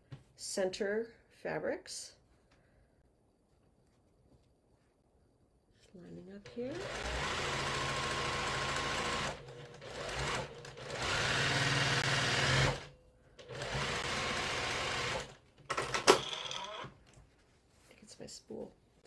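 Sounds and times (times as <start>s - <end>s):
sewing machine stitching: 6.4s - 16.9s.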